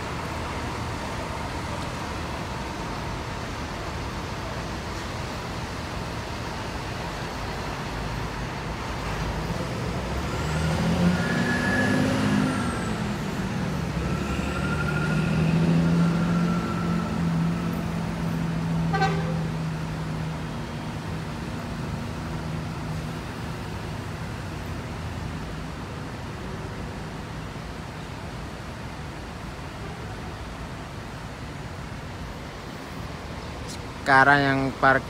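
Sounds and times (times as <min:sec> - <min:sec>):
bus engine running: 0:00.0 - 0:11.4, 0:12.0 - 0:35.0
bus horn tones: 0:18.9 - 0:19.5.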